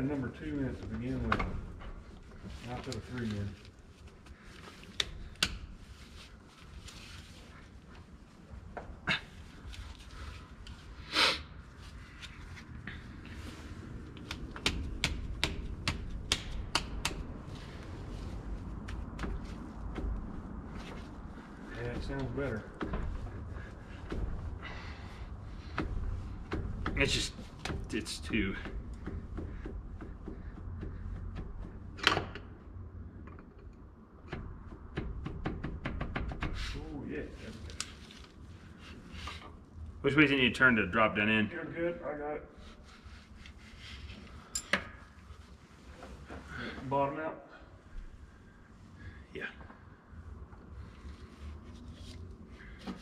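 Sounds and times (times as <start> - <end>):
short scraping hiss: 11.0 - 11.5
steady low rumble: 11.6 - 35.2
tools clicking and knocking on engine: 14.0 - 17.4, 18.9 - 20.6, 21.9 - 32.6.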